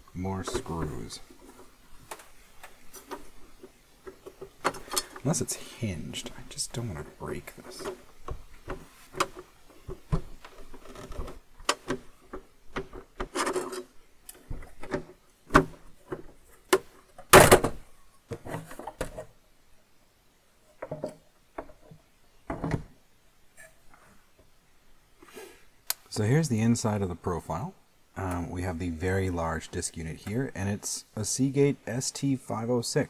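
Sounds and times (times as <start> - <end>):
plastic knocking and scraping: 7.5 - 19.3.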